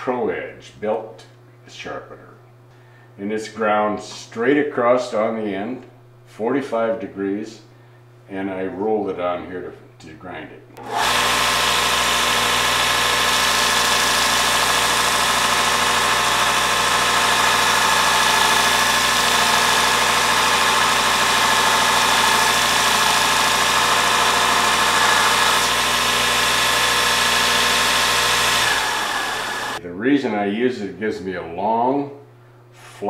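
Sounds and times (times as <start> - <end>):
belt grinding steel: 10.8 - 29.8
belt sharpener motor hum: 10.8 - 29.8.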